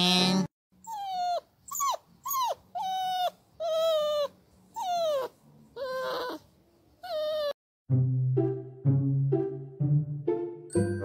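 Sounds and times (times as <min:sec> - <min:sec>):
puppy whining: 0:00.0 - 0:07.6.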